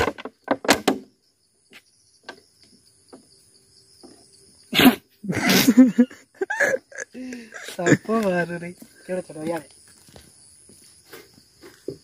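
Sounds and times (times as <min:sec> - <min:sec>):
man laughing loudly: 0:05.2 - 0:08.2.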